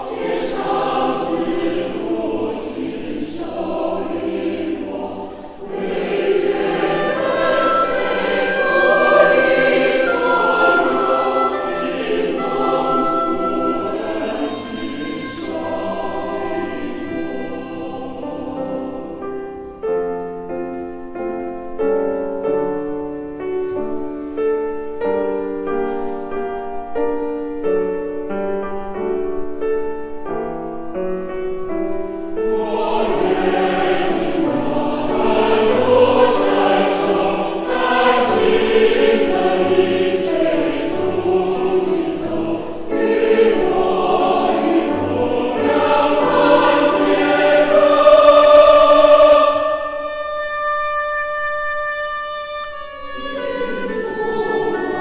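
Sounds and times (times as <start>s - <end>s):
choir singing a hymn: 0.0s - 19.9s, 31.4s - 50.5s, 53.0s - 55.0s.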